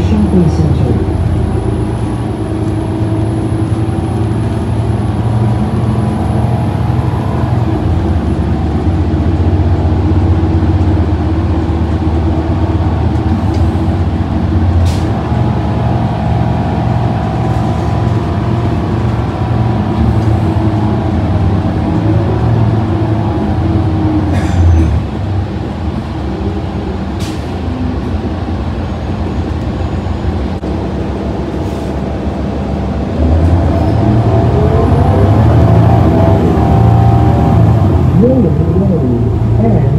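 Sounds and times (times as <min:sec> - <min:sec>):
bus engine driving: 0:00.0 - 0:39.9.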